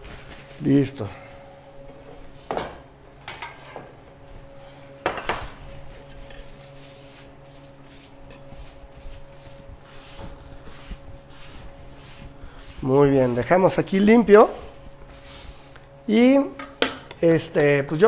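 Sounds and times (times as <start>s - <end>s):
cloth wiping counter: 5.2s - 16.0s.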